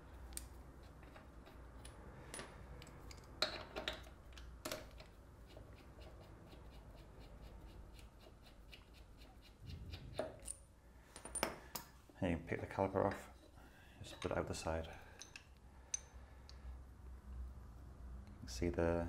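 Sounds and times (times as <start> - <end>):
metal tool clicks and clinks: 15.1 - 16.6.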